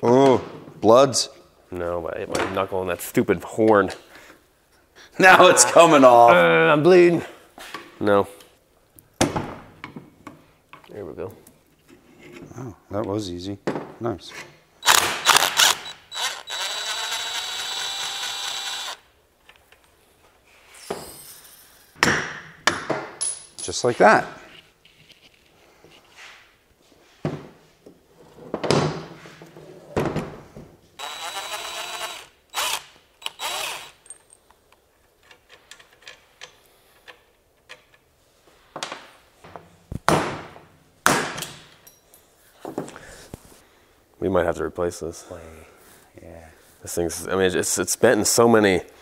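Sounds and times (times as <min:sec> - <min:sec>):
cordless power driver running: 0:14.8 - 0:19.0, 0:31.0 - 0:34.0.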